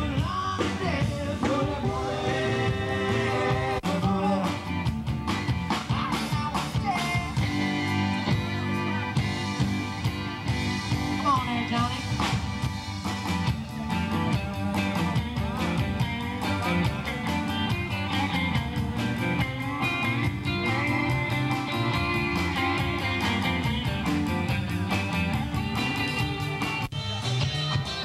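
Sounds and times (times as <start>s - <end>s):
guitar: 0.0s - 28.0s
live rock band playing: 0.0s - 28.0s.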